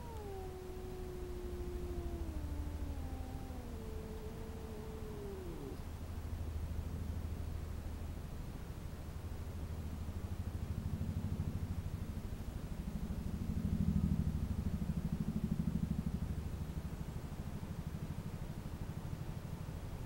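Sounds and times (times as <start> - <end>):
cat purring: 0.0 - 5.9.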